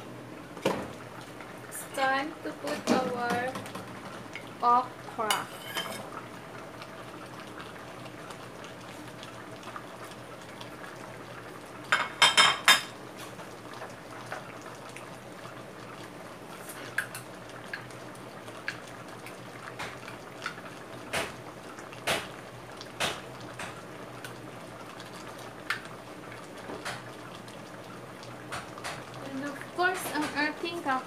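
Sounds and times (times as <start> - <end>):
curry bubbling in pot: 0.1 - 31.0.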